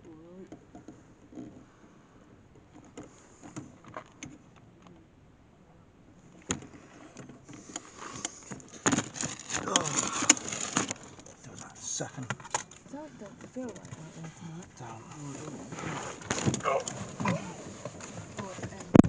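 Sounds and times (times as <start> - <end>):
handheld camera rustling and knocking: 6.5 - 19.0.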